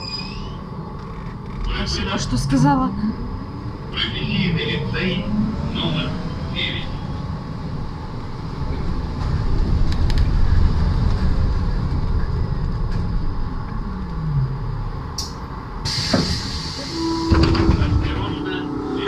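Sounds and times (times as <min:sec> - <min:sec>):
trolleybus rumble: 0:00.0 - 0:19.0
short air hiss: 0:15.9 - 0:16.9.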